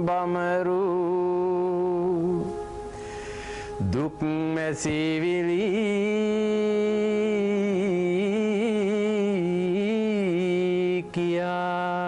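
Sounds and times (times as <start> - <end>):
person singing unaccompanied chant: 3.7 - 12.0.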